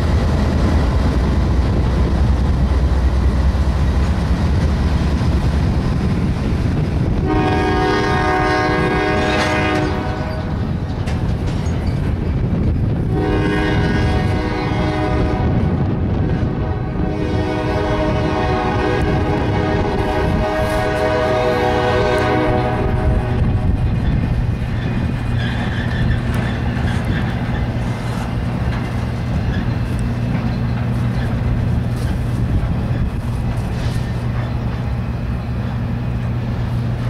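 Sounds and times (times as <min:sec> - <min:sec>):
low diesel engine drone: 0:00.0 - 0:11.8, 0:12.4 - 0:37.0
train cars rumbling and clattering: 0:00.0 - 0:37.0
locomotive air horn blast: 0:07.2 - 0:10.6, 0:13.0 - 0:23.7.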